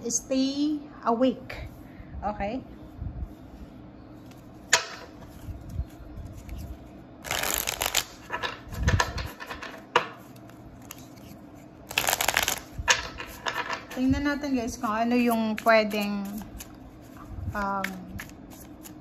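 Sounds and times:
cards riffle shuffling: 5.2s - 14.0s, 15.2s - 19.0s.

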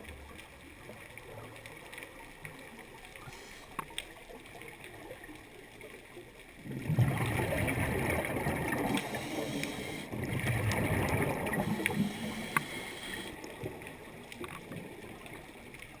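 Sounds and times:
faint clicks: 0.0s - 6.6s, 8.7s - 10.0s, 10.7s - 16.0s
quiet hiss: 0.1s - 6.6s, 8.2s - 16.0s
regulator exhaust bubbles underwater: 6.5s - 16.0s.

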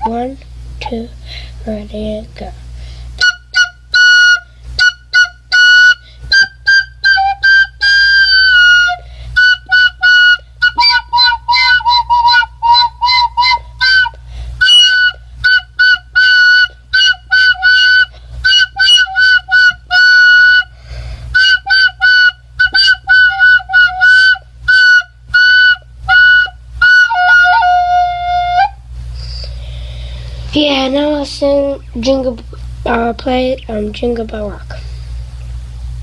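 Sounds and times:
child playing a recorder: 3.2s - 28.8s.

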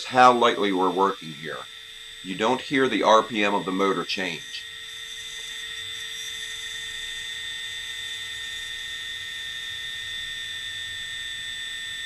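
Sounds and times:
rotary carving tool whine: 0.0s - 12.0s.

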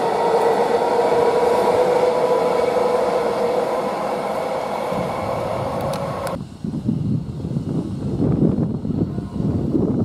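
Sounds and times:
electric train traction whine: 0.0s - 6.4s
train running noise: 0.0s - 10.0s.

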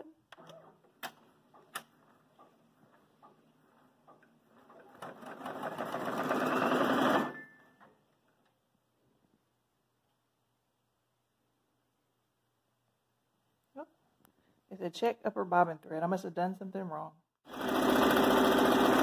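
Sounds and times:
embroidery machine stitching: 4.1s - 7.4s, 17.5s - 19.0s.

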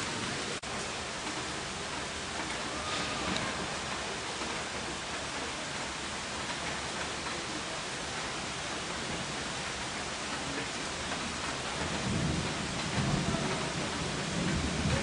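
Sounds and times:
steady rain falling: 0.0s - 15.0s
low rumble of thunder: 11.4s - 15.0s.

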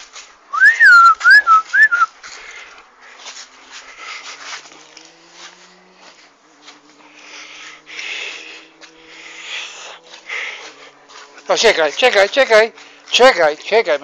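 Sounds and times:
faint scuffling: 0.0s - 14.0s
person whistling: 0.5s - 2.1s.

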